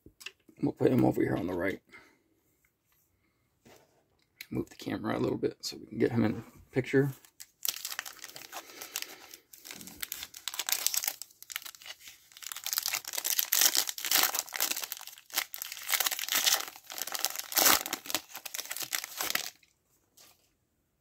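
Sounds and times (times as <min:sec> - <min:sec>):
plastic wrapper crinkling and tearing: 0:07.2 - 0:20.3.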